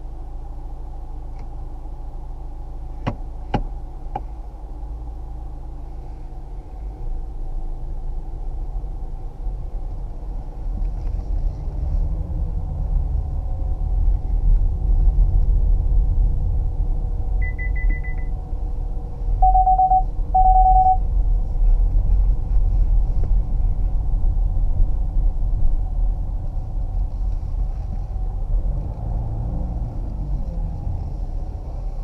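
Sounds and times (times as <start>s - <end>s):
car cabin engine rumble: 0.0s - 32.0s
parking sensor beeps: 17.4s - 18.4s, 19.4s - 21.0s.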